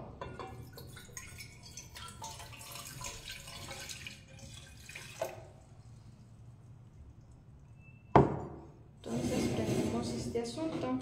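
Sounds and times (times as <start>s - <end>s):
water pouring and splashing: 0.6s - 5.8s.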